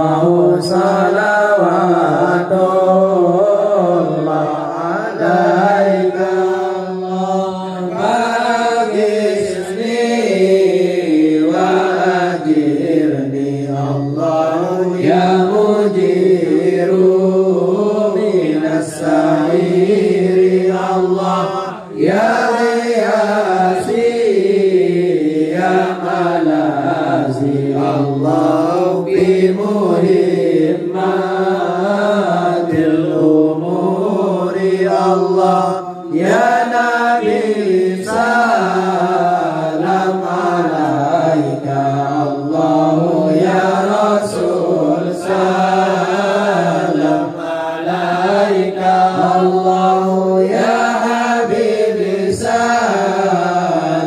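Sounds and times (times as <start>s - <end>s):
men chanting together: 0.0s - 54.0s.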